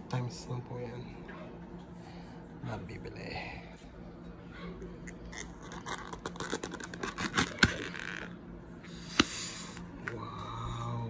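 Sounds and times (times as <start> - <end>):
plastic lid crackling: 5.4 - 8.4.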